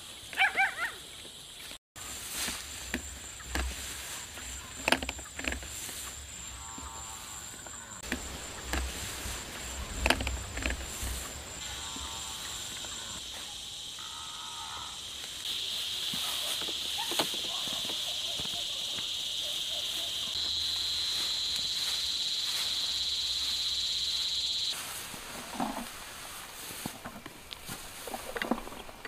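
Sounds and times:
high-pitched insect drone: 5.9s - 25.0s.

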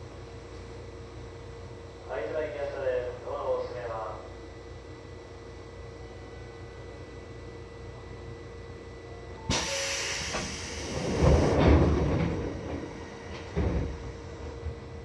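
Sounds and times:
air hiss: 9.5s - 11.6s
train doors sliding thumps: 9.5s - 14.9s.

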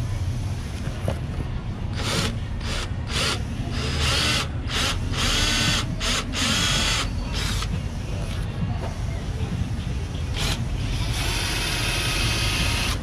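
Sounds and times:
cordless drill boring: 1.9s - 7.7s, 10.3s - 13.0s.

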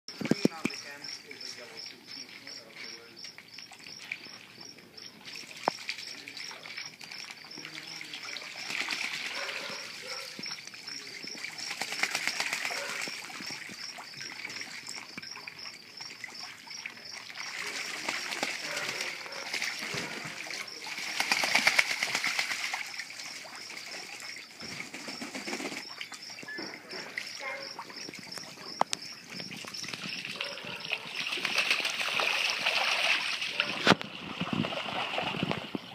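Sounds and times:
ducks splashing in water: 0.2s - 35.9s
wings flapping: 8.5s - 10.4s, 11.4s - 13.4s, 17.6s - 23.0s, 24.6s - 26.0s, 29.6s - 33.4s.

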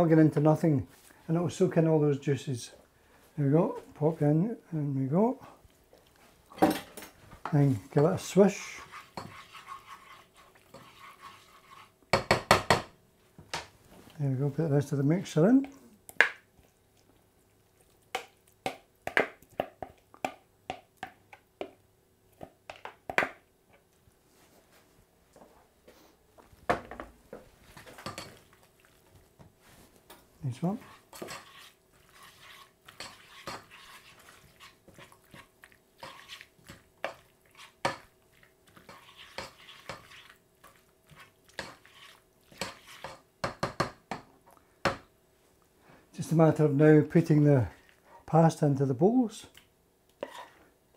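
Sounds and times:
spoon stirring pasta: 5.5s - 12.8s, 27.4s - 45.1s, 47.2s - 50.8s
plastic spoon scraping bowl: 8.7s - 11.9s, 30.8s - 36.5s, 38.9s - 40.3s
spoon knocking against pan: 12.1s - 12.9s, 43.4s - 44.3s.

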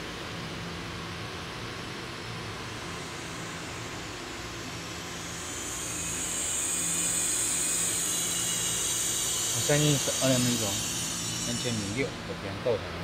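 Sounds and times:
passing train rushing hiss: 2.8s - 12.5s.

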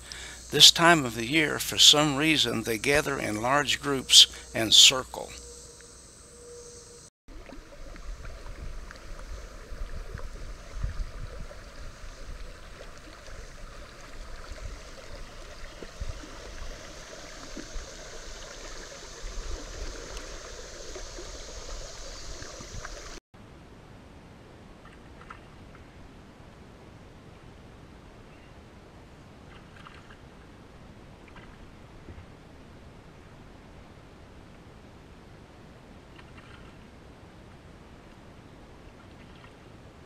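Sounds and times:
river water rushing and gurgling: 7.3s - 23.2s.

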